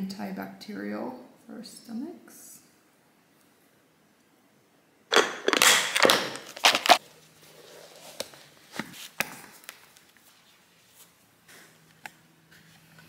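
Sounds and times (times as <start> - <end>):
sneakers rustling and knocking: 5.1 - 7.0.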